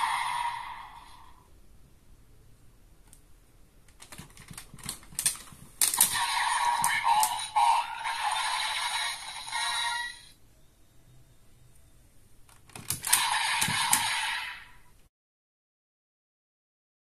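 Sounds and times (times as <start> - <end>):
plastic toy clicking and ratcheting: 4.0 - 7.5
electronic toy sound effects: 6.0 - 10.4, 13.0 - 14.8.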